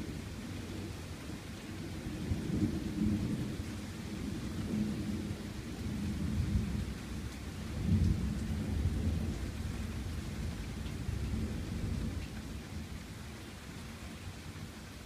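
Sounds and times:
rain falling: 0.0 - 15.0.

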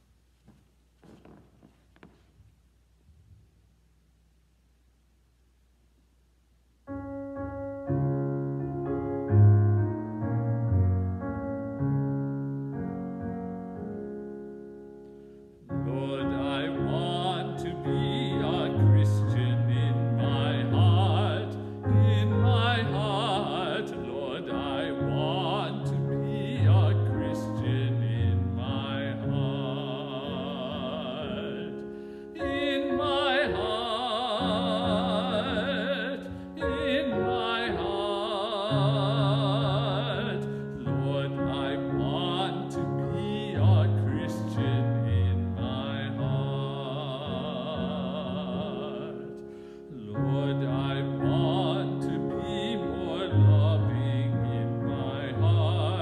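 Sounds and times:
piano: 6.8 - 56.0
man singing with vibrato: 15.6 - 56.0.

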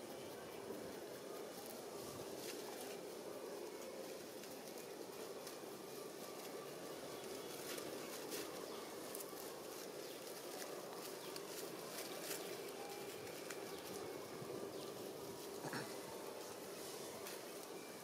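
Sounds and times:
dry leaves crackling and rustling: 0.0 - 18.0
outdoor background hum: 0.0 - 18.0.

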